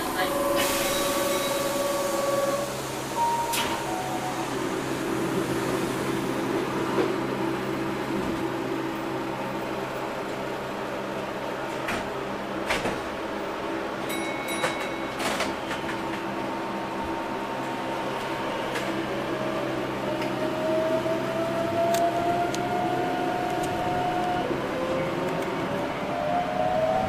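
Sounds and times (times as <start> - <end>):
train steady hum: 0.0 - 27.0.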